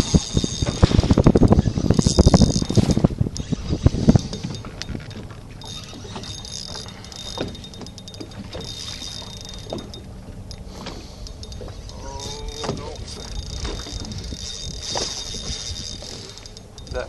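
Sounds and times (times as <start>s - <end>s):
light clicks and knocks: 4.1s - 17.0s.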